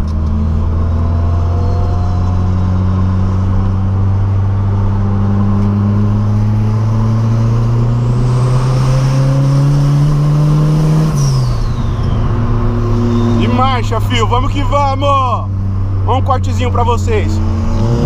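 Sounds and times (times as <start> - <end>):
car engine revving: 0.0 - 18.0.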